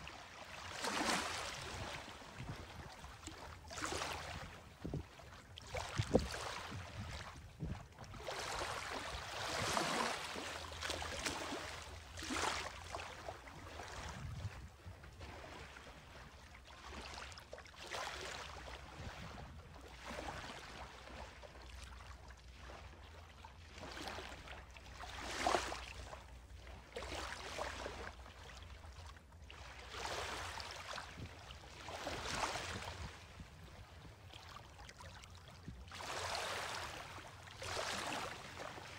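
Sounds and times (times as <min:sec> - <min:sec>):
small waves lapping on pebbles: 0:08.2 - 0:14.0, 0:29.7 - 0:33.1, 0:35.9 - 0:38.9.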